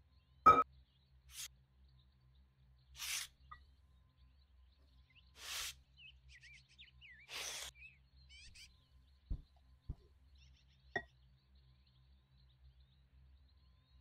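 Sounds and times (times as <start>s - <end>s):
faint bird-like chirps: 0.0s - 14.0s
powder pouring hiss: 5.4s - 5.7s.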